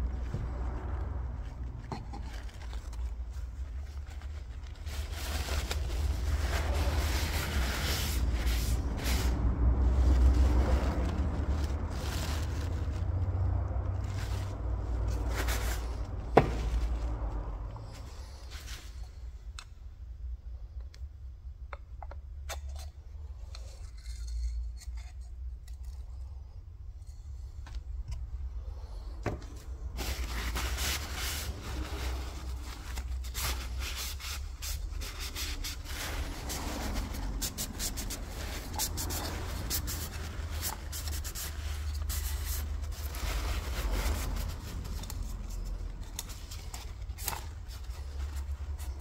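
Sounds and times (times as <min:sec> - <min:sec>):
paper towel rustling and crinkling: 0:00.0 - 0:19.0, 0:29.7 - 0:49.0
steady low rumble: 0:00.0 - 0:21.5.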